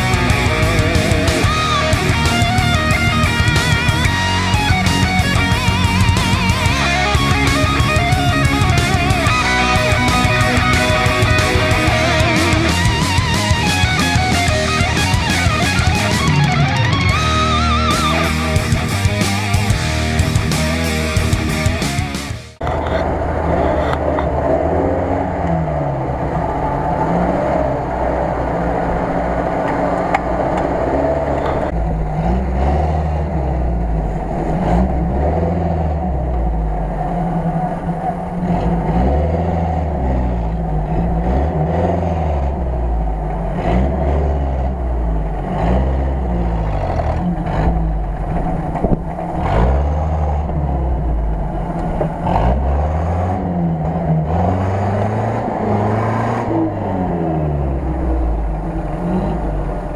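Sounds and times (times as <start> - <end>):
off-road vehicle engine revving: 0.0 - 59.9.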